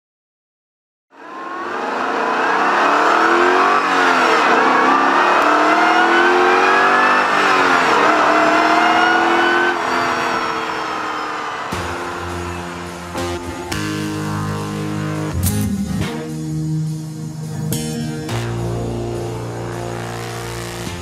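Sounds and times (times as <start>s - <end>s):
car engine accelerating hard: 1.2s - 15.4s.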